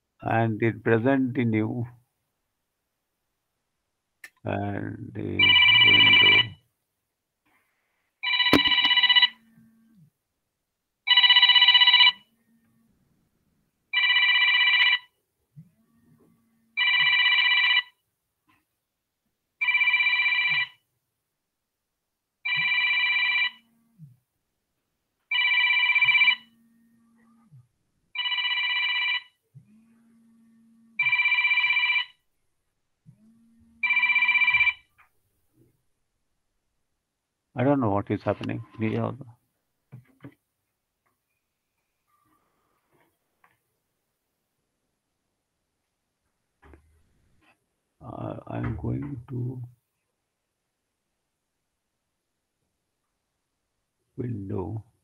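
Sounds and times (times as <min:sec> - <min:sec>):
telephone ringing: 0:05.4 - 0:06.6, 0:08.2 - 0:09.4, 0:11.0 - 0:12.3, 0:13.9 - 0:15.2, 0:16.8 - 0:18.0, 0:19.6 - 0:20.8, 0:22.4 - 0:23.7, 0:25.3 - 0:26.6, 0:28.1 - 0:29.4, 0:31.0 - 0:32.2, 0:33.8 - 0:34.9.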